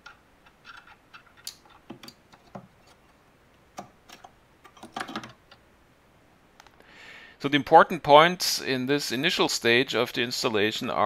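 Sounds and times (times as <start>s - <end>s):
small clicks taps and scrapes: 0.0s - 3.2s, 3.8s - 5.6s.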